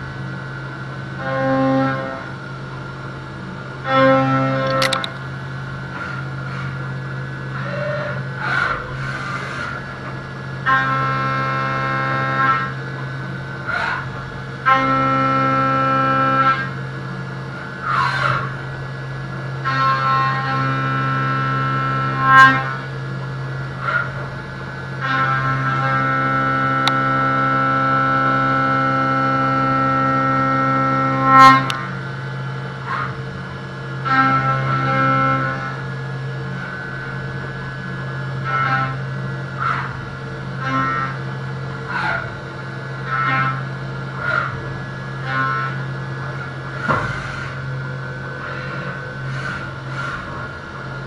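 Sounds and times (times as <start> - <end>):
milling machine cutter whine: 0.0 - 51.0
metal cutting noise: 4.0 - 12.8, 36.5 - 51.0.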